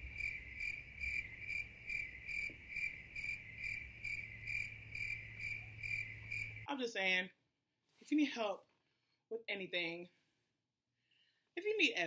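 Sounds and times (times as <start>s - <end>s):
crickets chirping: 0.0s - 6.7s.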